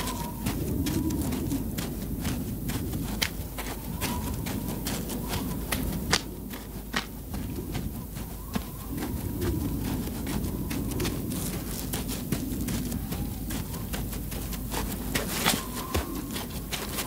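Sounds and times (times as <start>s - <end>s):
footsteps on dirt road: 0.0s - 17.0s
low background noise: 0.0s - 17.0s.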